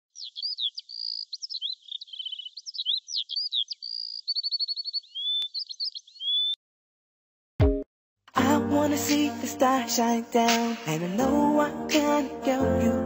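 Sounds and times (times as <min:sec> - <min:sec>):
songbird singing: 0:00.0 - 0:06.6.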